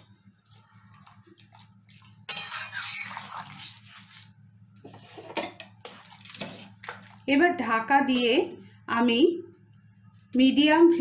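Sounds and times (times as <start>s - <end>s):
low steady hum: 0.0s - 11.0s
spatula stirring stew in a pan: 0.4s - 7.3s.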